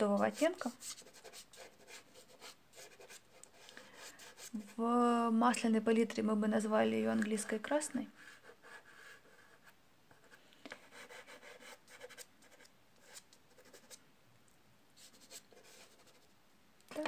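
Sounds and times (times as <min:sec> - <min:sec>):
pastel scratching on rough paper: 0:00.0 - 0:04.8, 0:15.0 - 0:16.3.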